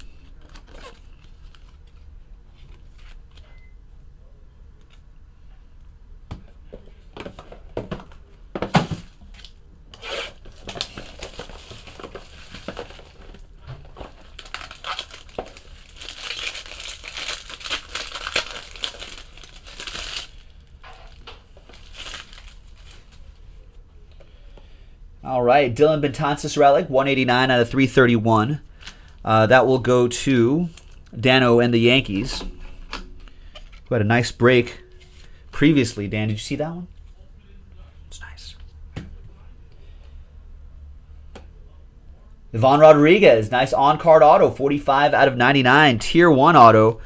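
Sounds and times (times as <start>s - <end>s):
plastic shrink wrap crinkling: 9.3s - 23.4s.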